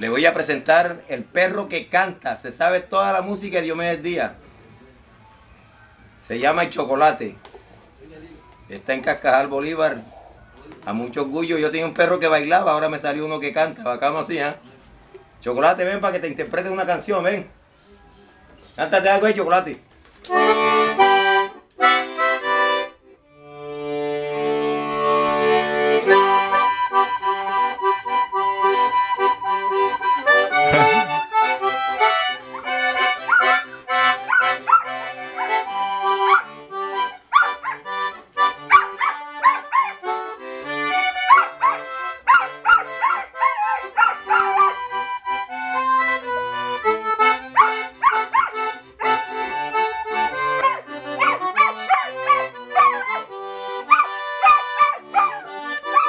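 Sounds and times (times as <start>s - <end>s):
button accordion playing: 20.3s - 56.0s
dog howling: 32.6s - 35.6s, 38.7s - 40.0s, 41.3s - 44.8s, 47.6s - 48.5s, 50.6s - 53.1s, 53.9s - 56.0s.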